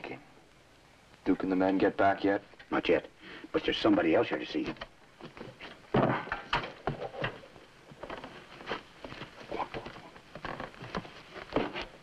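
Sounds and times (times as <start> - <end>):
footsteps on wooden floor: 5.2 - 12.0.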